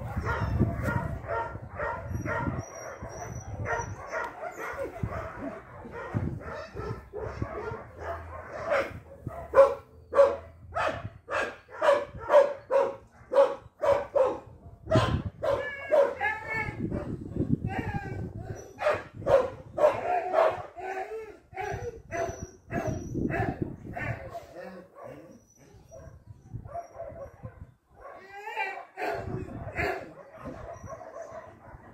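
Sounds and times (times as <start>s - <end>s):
dog barking: 0.0s - 17.2s, 18.8s - 20.8s, 21.6s - 28.2s, 28.8s - 31.9s.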